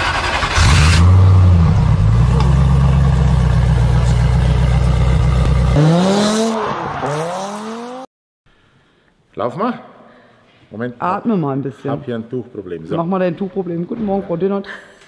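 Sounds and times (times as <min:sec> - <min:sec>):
car engine droning and revving: 0:00.0 - 0:08.1.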